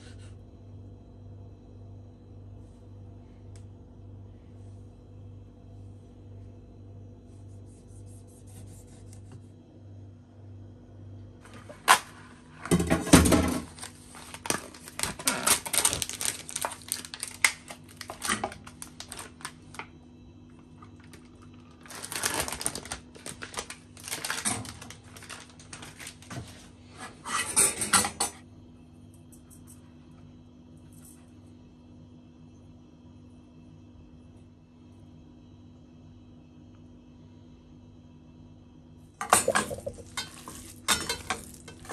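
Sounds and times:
faint steady hum: 0:00.0 - 0:41.9
bowls clattering: 0:39.2 - 0:41.9.

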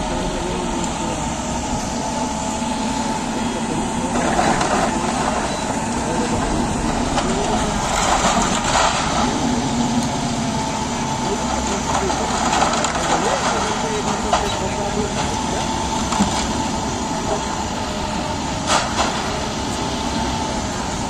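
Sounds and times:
diesel engine running: 0:00.0 - 0:21.0
rubble crashing down: 0:04.2 - 0:10.6.

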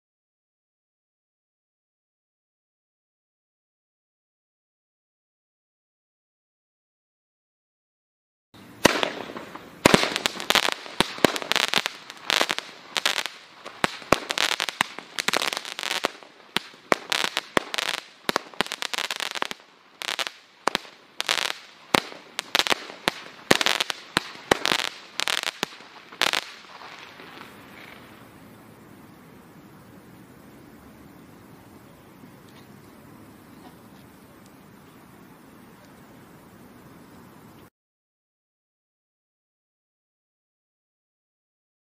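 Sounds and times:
firework hiss: 0:08.6 - 0:37.7
firework launch thumps and bursts: 0:08.8 - 0:28.2.

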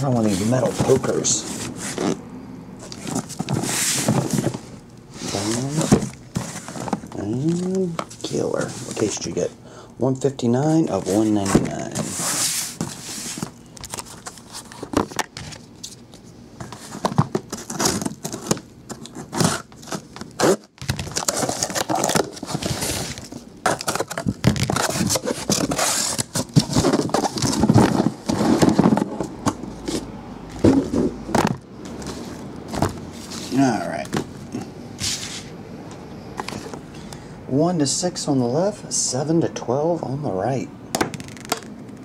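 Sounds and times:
cardboard and tape crackling: 0:16.6 - 0:34.3
boxes knocking on a table: 0:30.6 - 0:31.6.

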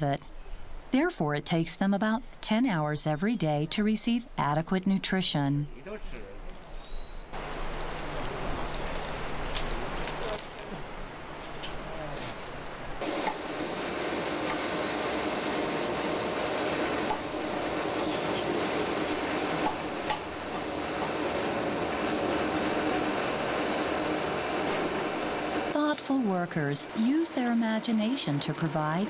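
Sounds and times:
machine humming: 0:07.4 - 0:29.0.

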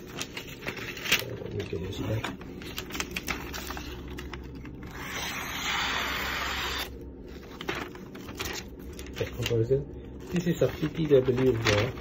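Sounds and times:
paper rustling and crinkling: 0:00.0 - 0:04.9, 0:07.3 - 0:12.0.

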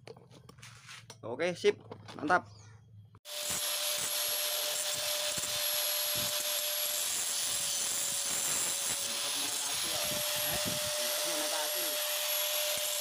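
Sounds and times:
motor-driven tool humming: 0:03.3 - 0:13.0.

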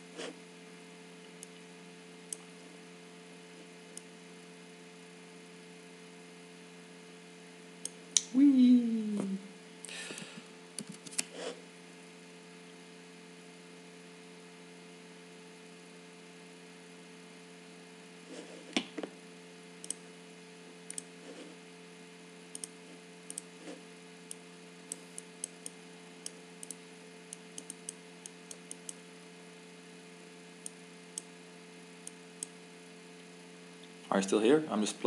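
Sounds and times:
electrical hum: 0:00.0 - 0:35.0
computer mouse clicking: 0:10.8 - 0:11.3, 0:22.5 - 0:23.5, 0:24.3 - 0:29.0.

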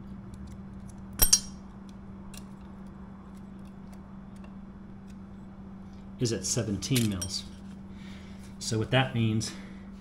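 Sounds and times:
metal calipers clinking: 0:01.2 - 0:01.7, 0:06.8 - 0:07.6.

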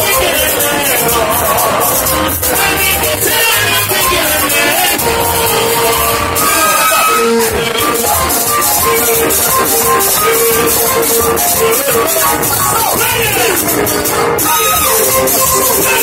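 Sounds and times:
guitar: 0:00.0 - 0:16.0
people singing: 0:00.0 - 0:16.0.

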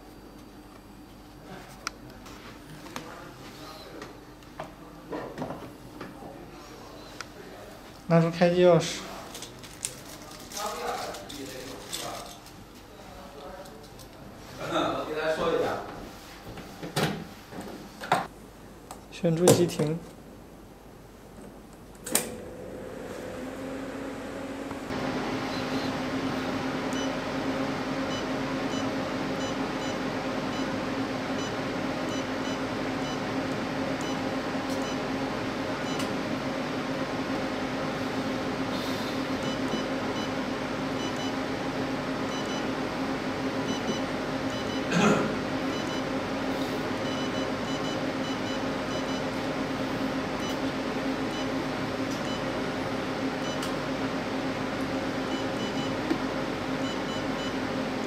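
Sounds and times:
machine humming: 0:21.6 - 0:58.0.

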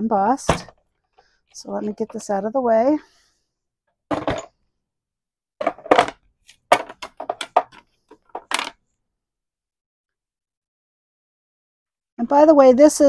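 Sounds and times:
plastic and metal tools clinking: 0:04.1 - 0:04.5, 0:05.6 - 0:08.8.

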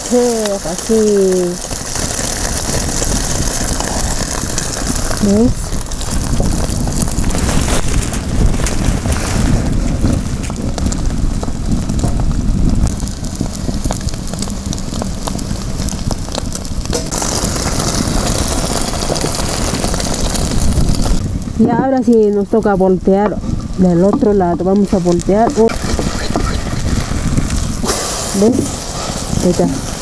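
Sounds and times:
egg sizzling in frying pan: 0:00.0 - 0:22.2, 0:24.8 - 0:30.0
wind rumble on microphone: 0:00.0 - 0:30.0.

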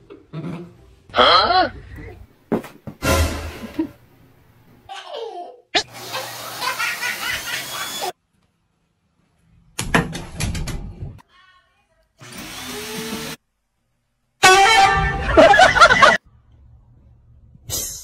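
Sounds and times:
vacuum cleaner running: 0:05.9 - 0:08.1, 0:12.2 - 0:13.4.

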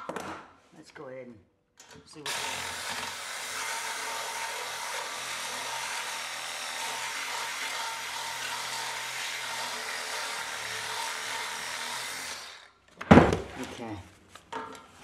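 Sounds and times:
power saw cutting metal: 0:02.3 - 0:12.8.

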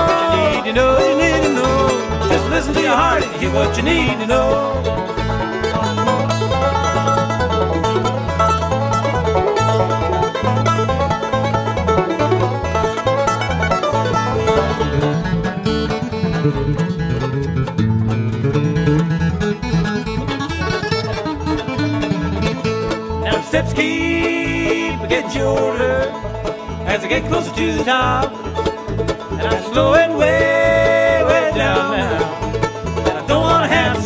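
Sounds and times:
banjo picking: 0:00.0 - 0:34.0
guitar picking: 0:00.0 - 0:34.0.

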